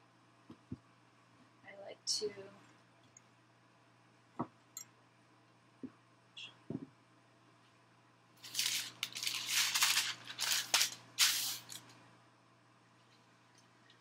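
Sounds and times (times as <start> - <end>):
paper crinkling and rustling: 8.4 - 11.9.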